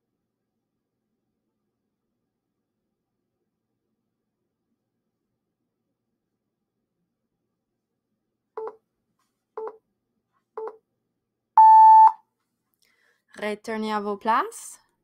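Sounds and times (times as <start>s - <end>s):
timer long tone: 11.6s - 12.2s
timer short beeps: 11.6s - 12.2s.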